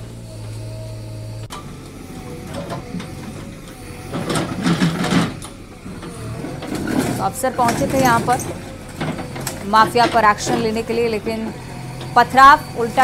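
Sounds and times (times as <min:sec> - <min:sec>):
diesel engine running: 0:00.0 - 0:13.0
building being demolished: 0:01.7 - 0:13.0
people talking: 0:07.2 - 0:08.5, 0:09.6 - 0:11.6, 0:12.2 - 0:13.0.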